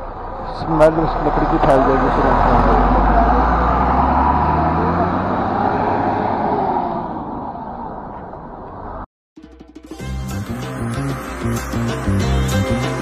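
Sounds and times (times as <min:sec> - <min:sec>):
bus engine rumble and road noise: 0:00.0 - 0:09.1
music: 0:09.4 - 0:13.0.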